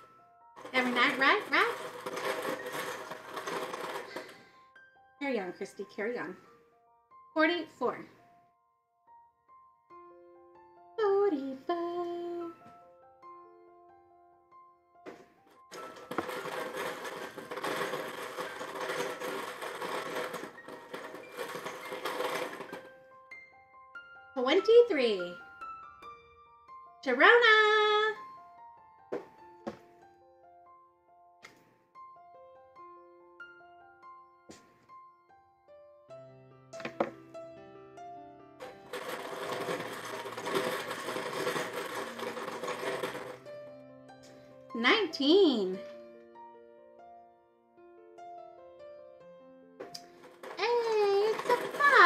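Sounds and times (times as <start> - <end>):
faint background music: 0.0 - 35.3, 36.1 - 47.4
rattling clatter of small objects: 0.6 - 4.5, 15.6 - 23.0, 38.6 - 43.5, 49.8 - 52.0.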